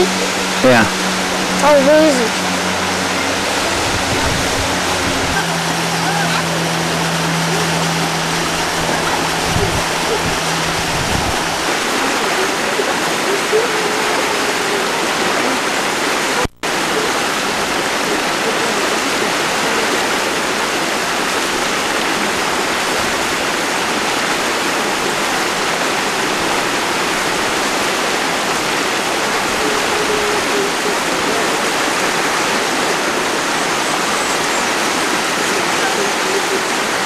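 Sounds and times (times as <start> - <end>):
flowing water rushing: 0.0 - 37.0.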